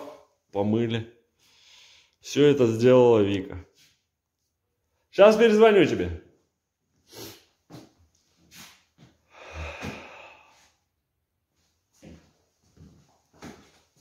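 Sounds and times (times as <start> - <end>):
breathy hiss: 9.3 - 10.7.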